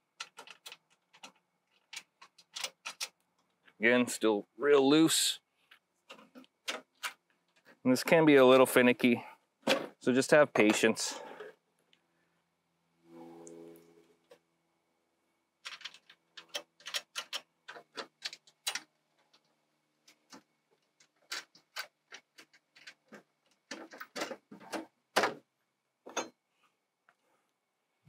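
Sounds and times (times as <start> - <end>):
bolts and nuts clicking: 0.1 - 3.5, 15.6 - 24.9.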